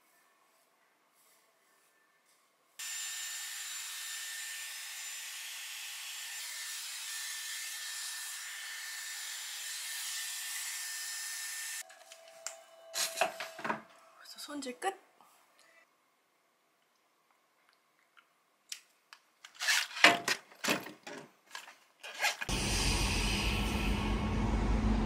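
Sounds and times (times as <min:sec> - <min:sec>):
hot-air styler blowing: 0:22.5 - 0:25.0.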